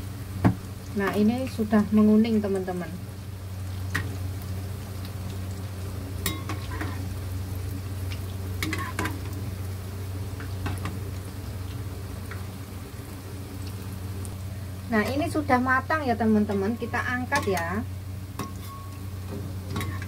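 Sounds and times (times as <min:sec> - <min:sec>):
fritters sizzling in hot oil: 0:00.0 - 0:20.0
metal spatula scraping pan: 0:18.4 - 0:18.9.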